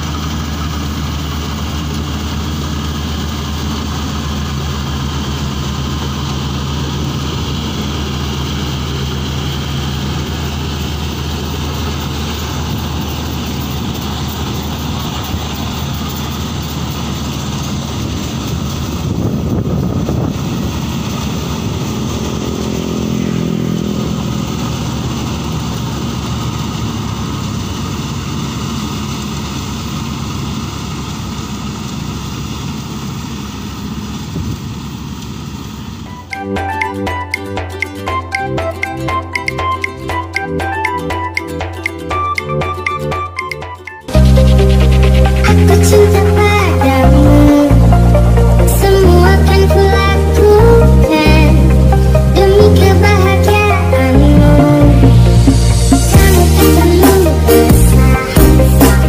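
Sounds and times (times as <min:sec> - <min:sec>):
combine harvester engine drone: 0:00.0 - 0:59.0.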